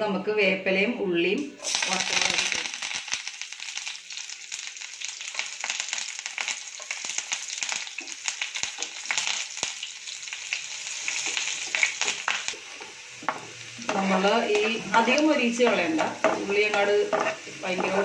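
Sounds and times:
shallots sizzling in oil: 0:01.6 - 0:18.0
wooden spatula stirring: 0:12.7 - 0:18.0.

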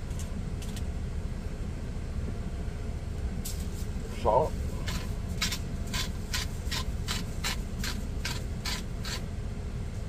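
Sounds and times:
salt grinder rasping: 0:04.8 - 0:09.2.

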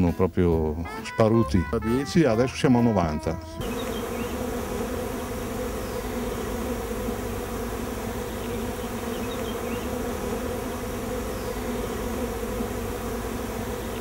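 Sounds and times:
honeybees buzzing: 0:03.6 - 0:14.0.

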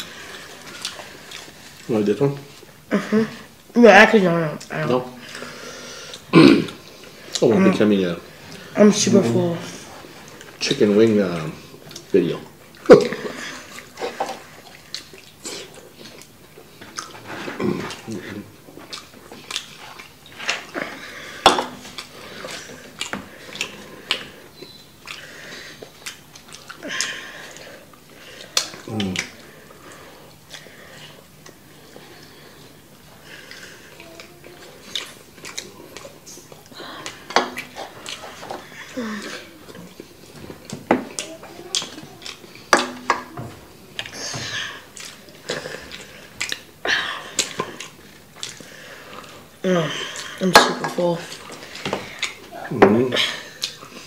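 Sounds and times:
chewing and lip smacks: 0:00.3 - 0:01.8, 0:13.7 - 0:21.0, 0:21.7 - 0:32.4, 0:33.1 - 0:42.7, 0:44.9 - 0:49.5, 0:51.3 - 0:52.5, 0:53.6 - 0:54.0.

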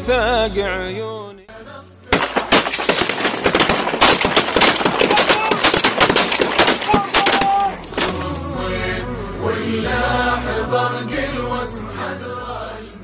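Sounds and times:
rapid shotgun shots: 0:02.1 - 0:08.2.

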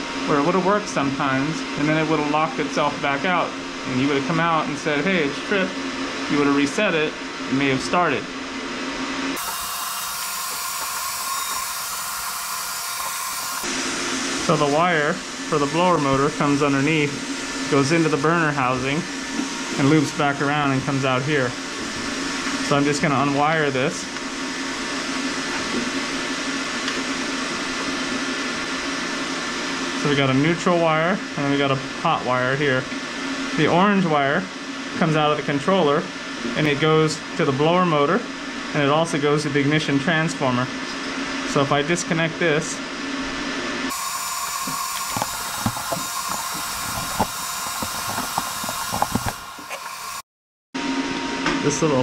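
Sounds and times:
fan or motor whirring: 0:00.0 - 0:50.2
tools clicking and tapping: 0:44.6 - 0:49.8.

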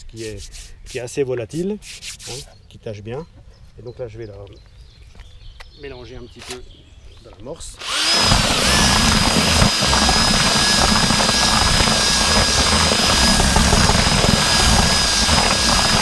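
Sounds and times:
electric drill motor whining: 0:07.8 - 0:16.0
mixer churning powder in bucket: 0:07.8 - 0:16.0.

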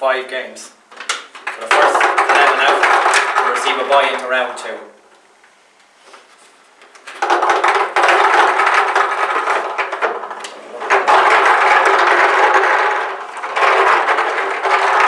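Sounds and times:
plastic balls rattling in a drum: 0:00.9 - 0:04.8, 0:06.9 - 0:15.0.

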